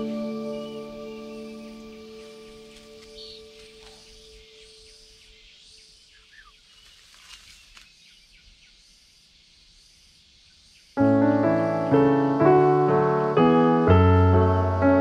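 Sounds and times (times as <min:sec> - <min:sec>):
background piano music: 0:00.0 - 0:04.9, 0:11.0 - 0:15.0.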